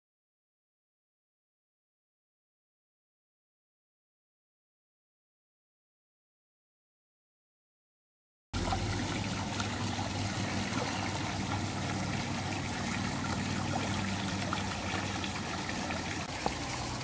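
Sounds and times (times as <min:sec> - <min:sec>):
water trickling over rocks: 0:08.6 - 0:17.0.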